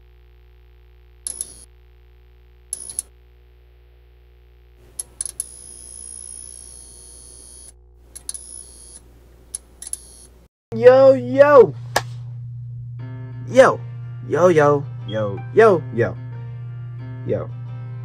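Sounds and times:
high buzzing tone: 0:00.0 - 0:03.6, 0:04.3 - 0:09.1
low steady hum: 0:00.0 - 0:17.0.

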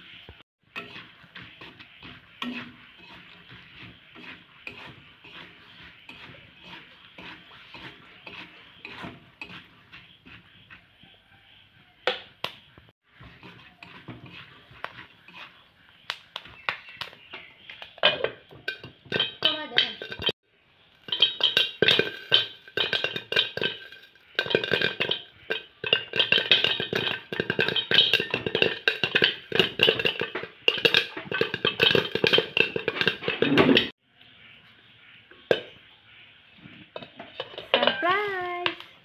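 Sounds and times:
popcorn popping in a pan: 0:00.0 - 0:34.0
kernels clinking on metal lid: 0:17.8 - 0:20.3, 0:21.0 - 0:33.9, 0:37.0 - 0:38.8.

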